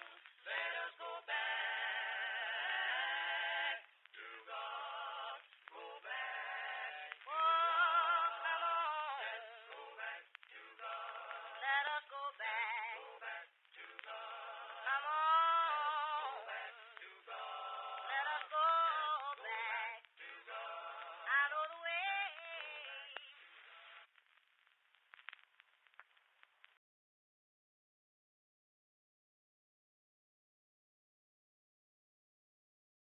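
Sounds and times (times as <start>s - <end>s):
person singing with vibrato: 0.0s - 23.4s.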